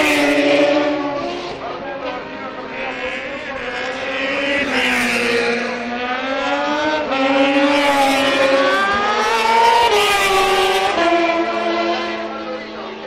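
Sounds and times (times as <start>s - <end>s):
motorcycles racing past at high revs: 0.0s - 13.0s.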